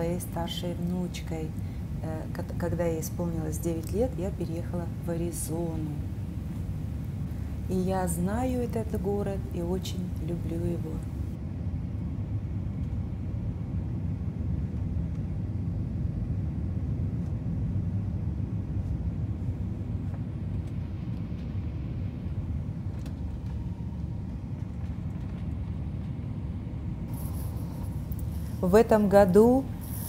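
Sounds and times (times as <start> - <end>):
jet engine and airflow rumble: 0.0 - 30.0.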